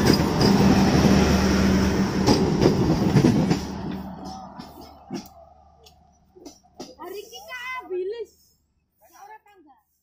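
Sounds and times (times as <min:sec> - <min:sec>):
wheels clacking over rail joints: 0:00.0 - 0:07.3
train wheels rumbling on rails: 0:00.0 - 0:07.8.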